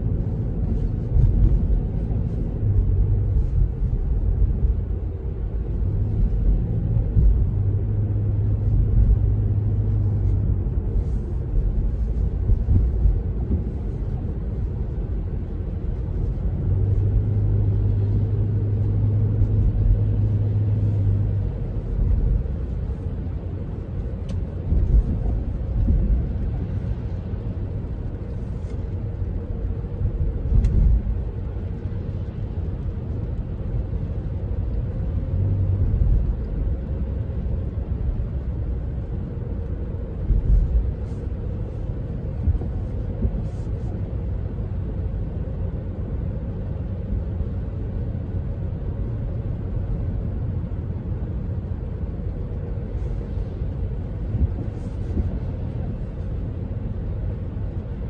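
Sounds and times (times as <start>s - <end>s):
tyres and engine rumble: 0.0s - 58.0s
thumps from road bumps: 0.6s - 3.7s, 6.2s - 7.8s, 10.3s - 14.3s, 24.2s - 26.7s, 29.9s - 31.3s, 42.3s - 43.5s.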